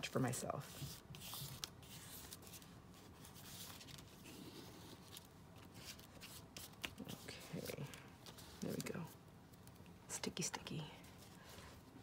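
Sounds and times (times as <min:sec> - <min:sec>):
paper rustling: 0:00.6 - 0:09.8.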